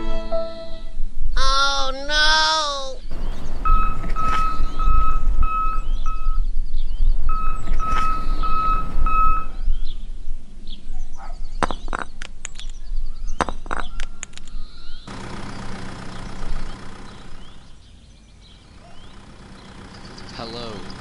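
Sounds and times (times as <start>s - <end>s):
even beeps: 3.1s - 6.5s, 7.2s - 9.8s
toy bricks clattering: 11.6s - 12.8s, 13.4s - 14.6s.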